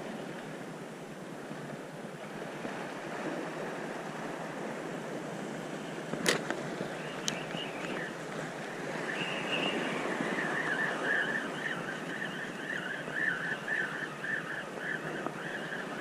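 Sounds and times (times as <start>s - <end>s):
wind and sea rushing: 0.0s - 16.0s
fishing reel whirring: 8.8s - 16.0s.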